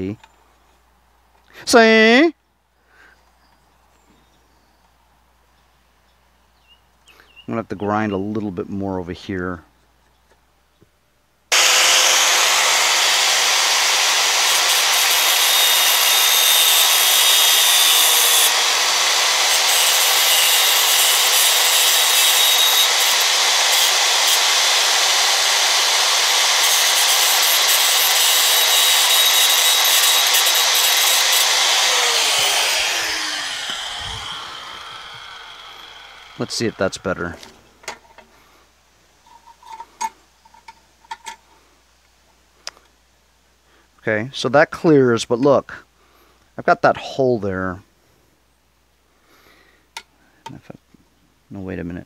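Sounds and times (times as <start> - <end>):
angle grinder grinding metal: 11.5 - 37.6.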